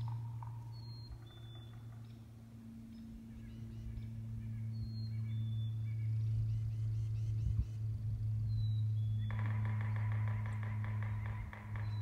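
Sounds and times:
bird chirps and calls: 0.0 - 2.3, 8.5 - 12.0
steady low hum: 0.0 - 12.0.

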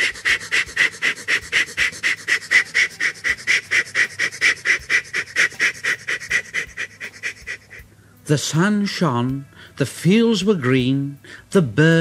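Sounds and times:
steam locomotive chuffing: 0.0 - 7.8.

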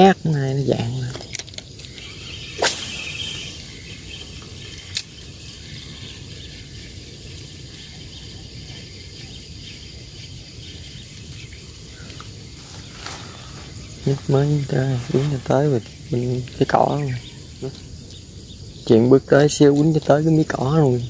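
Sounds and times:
high insect tone: 0.0 - 21.0
fishing rod swish: 2.5 - 3.4.

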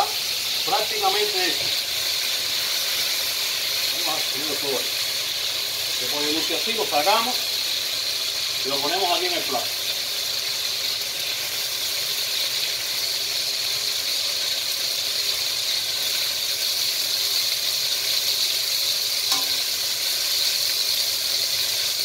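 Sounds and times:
chicken sizzling in a pan: 0.0 - 22.0.

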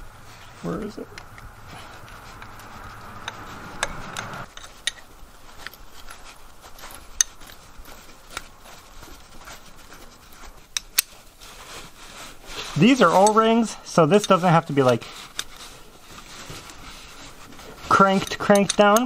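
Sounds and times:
metal rubbing and scraping: 0.0 - 19.0
wrench clinking on metal: 18.1 - 19.0.

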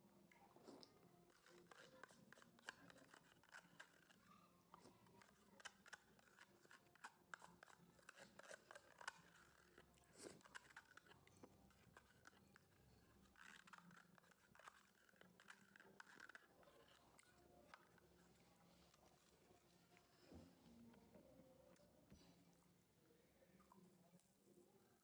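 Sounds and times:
spoon scraping plastic cup: 0.7 - 19.4.

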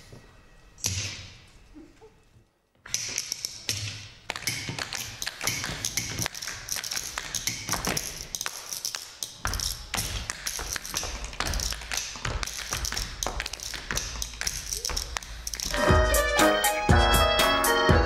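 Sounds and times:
shoes tapping on stage floor: 3.2 - 17.4.

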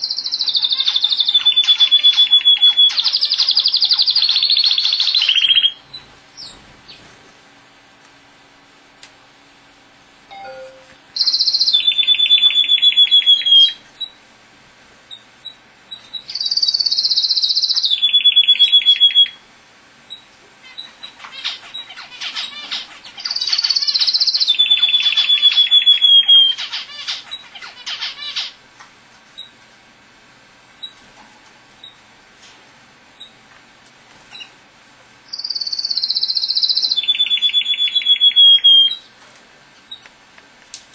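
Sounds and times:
canary singing trills: 0.0 - 7.0, 10.3 - 14.2, 15.1 - 28.7, 35.2 - 39.1.

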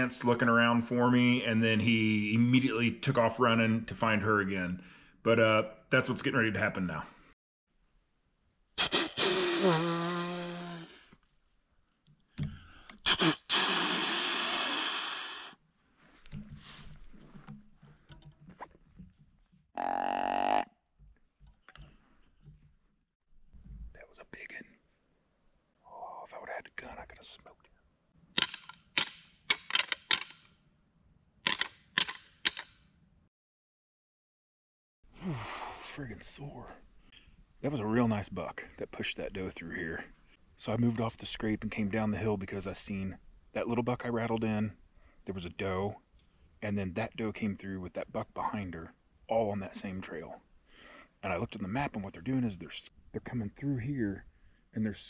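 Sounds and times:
snort-wheeze deer call: 13.0 - 15.6
sharp clicks or knocks: 28.4 - 30.5, 31.4 - 32.8.

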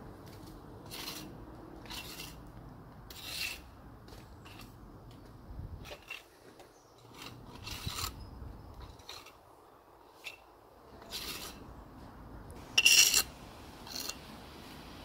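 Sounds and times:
rough scraping and rubbing: 0.4 - 2.5, 3.1 - 4.8, 5.8 - 11.7, 12.6 - 14.2.

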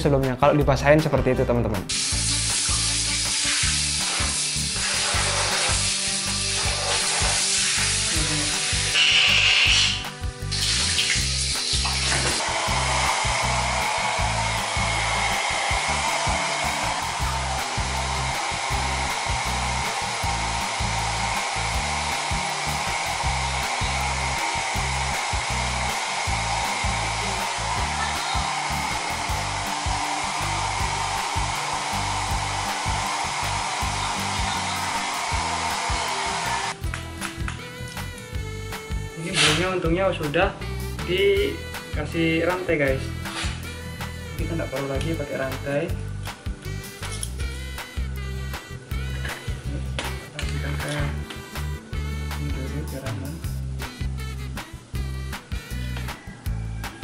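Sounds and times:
hair dryer blowing: 1.9 - 36.9.

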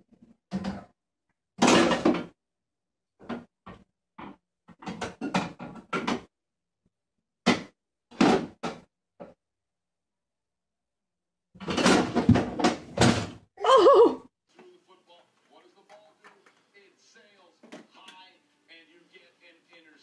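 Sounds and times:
kitchen drawer knocking and rattling: 1.6 - 2.4, 7.5 - 9.4, 11.6 - 13.4.

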